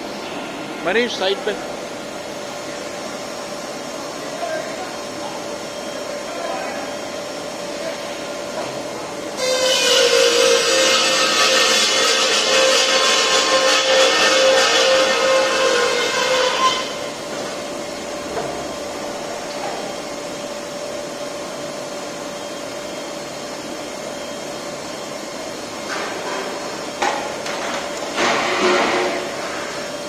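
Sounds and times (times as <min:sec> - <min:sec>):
machine hum with faint whine: 0:00.0 - 0:30.0
loud ringing metal tones: 0:09.4 - 0:17.1.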